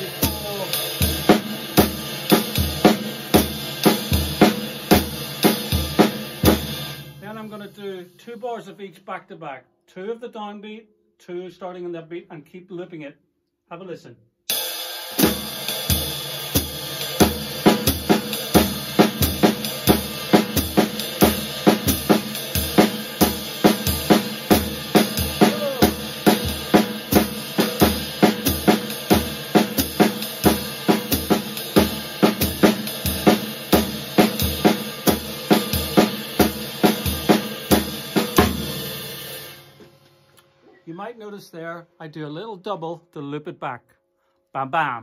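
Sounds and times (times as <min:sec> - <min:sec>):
snare drum: 0:00.0 - 0:06.9, 0:15.2 - 0:39.1
ride cymbal swing pattern: 0:00.0 - 0:08.7, 0:14.5 - 0:40.8
bass drum: 0:15.2 - 0:39.0.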